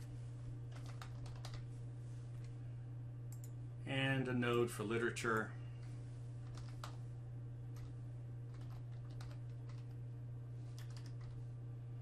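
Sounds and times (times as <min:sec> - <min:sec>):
low electrical hum: 0:00.0 - 0:12.0
keyboard typing: 0:00.7 - 0:01.6, 0:06.4 - 0:07.0, 0:08.5 - 0:10.0, 0:10.8 - 0:11.4.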